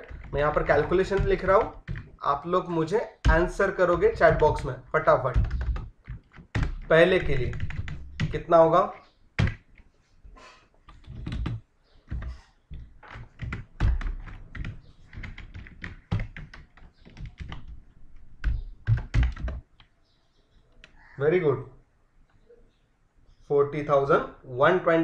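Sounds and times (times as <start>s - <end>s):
typing on computer keyboard: 0.0s - 2.3s, 3.2s - 8.5s, 10.9s - 19.9s.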